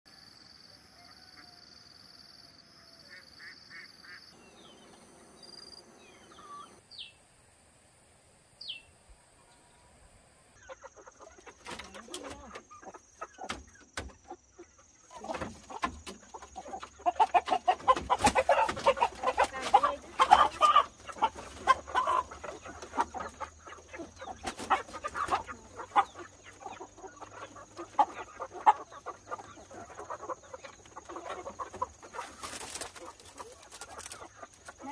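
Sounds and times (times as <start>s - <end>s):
chickens clucking and squawking: 0.1s - 4.3s, 8.6s - 34.9s.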